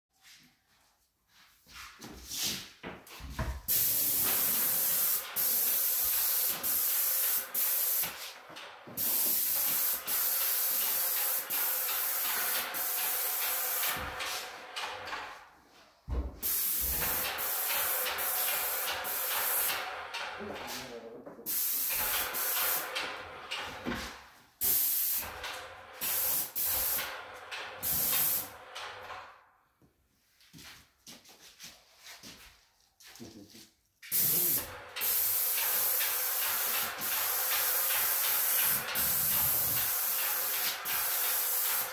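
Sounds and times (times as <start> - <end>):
paint spray gun hissing: 3.7 - 8.2, 9.0 - 14.6, 16.4 - 19.8, 21.5 - 23.0, 24.6 - 25.4, 26.0 - 27.2, 27.8 - 28.5, 34.1 - 41.9.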